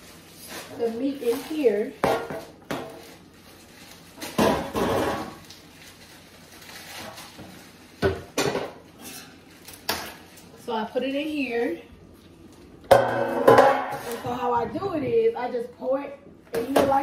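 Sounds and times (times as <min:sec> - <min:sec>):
metal pan clattering: 0:12.9 - 0:14.3.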